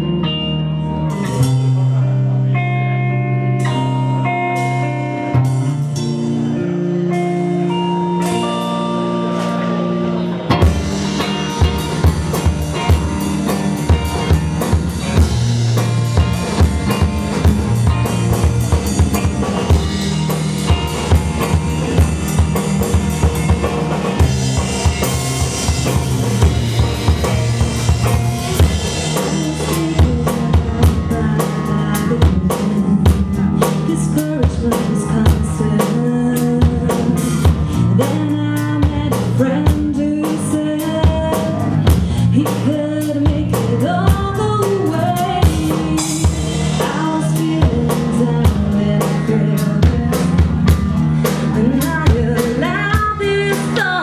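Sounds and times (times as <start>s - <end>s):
bass guitar notes: 0.0s - 54.0s
guitar: 0.0s - 54.0s
drum kit beat: 3.6s - 54.0s.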